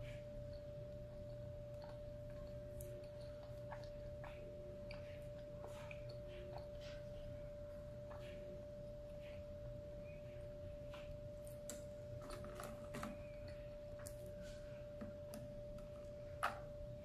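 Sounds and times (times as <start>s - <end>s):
person chewing: 0.0s - 9.6s.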